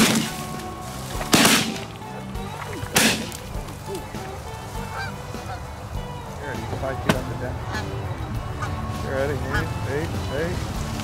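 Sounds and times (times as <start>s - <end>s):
shotgun blasts: 1.3s - 1.9s, 2.9s - 3.4s.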